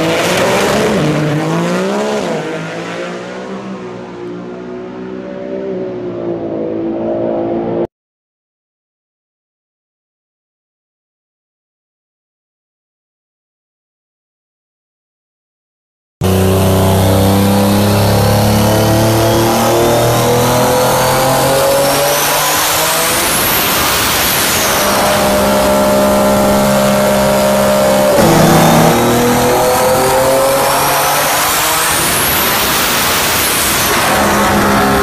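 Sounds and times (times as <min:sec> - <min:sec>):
car engine revving at full throttle: 0:00.0 - 0:07.9, 0:16.2 - 0:35.0.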